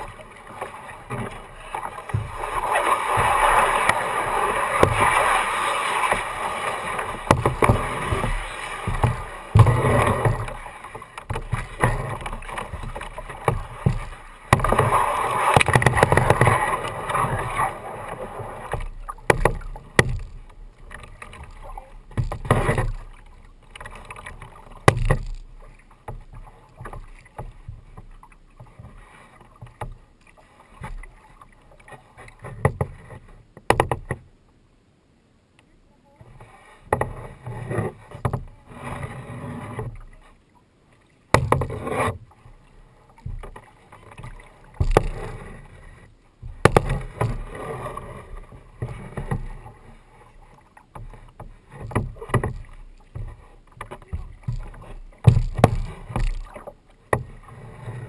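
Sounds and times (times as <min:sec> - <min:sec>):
paddle knocking on kayak: 0:00.0 - 0:17.5, 0:18.6 - 0:30.0, 0:33.6 - 0:34.2, 0:41.3 - 0:42.2, 0:43.1 - 0:45.8, 0:46.4 - 0:49.8, 0:50.8 - 0:57.4
kayak paddle splashing in water: 0:00.0 - 0:34.2, 0:36.3 - 0:58.0.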